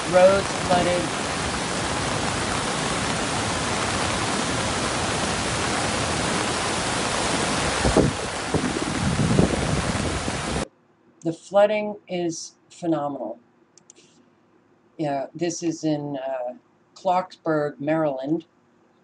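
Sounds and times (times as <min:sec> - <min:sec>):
floodwater rushing: 0:00.0 - 0:10.6
heavy rain: 0:00.0 - 0:10.6
rumbling water surges: 0:00.0 - 0:10.6.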